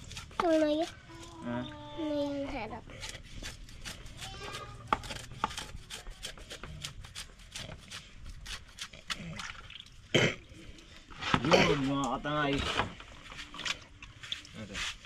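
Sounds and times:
knife scraping fish scales: 0.0 - 1.4, 2.9 - 9.4.

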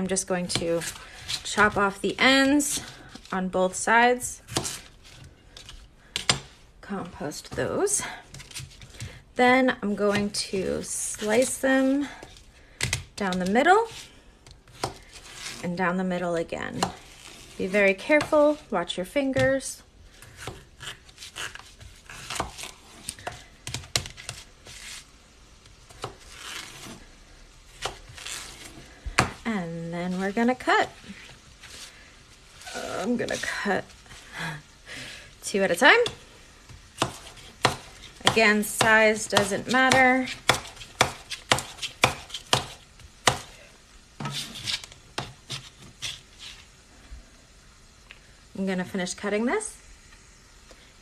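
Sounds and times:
knife scraping board: 13.2 - 15.7, 16.8 - 18.7, 20.2 - 25.1, 26.0 - 27.1, 37.0 - 43.5, 44.2 - 46.7
knife chopping on plastic board: 29.1 - 29.4, 37.0 - 43.5.

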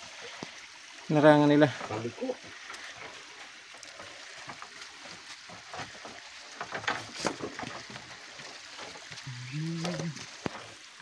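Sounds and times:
water trickling and splashing: 0.0 - 11.0
low voice: 9.3 - 10.2.

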